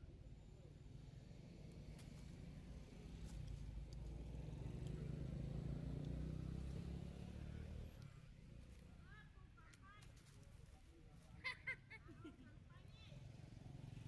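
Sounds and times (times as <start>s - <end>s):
vehicle engine rumble: 0.1s - 9.2s.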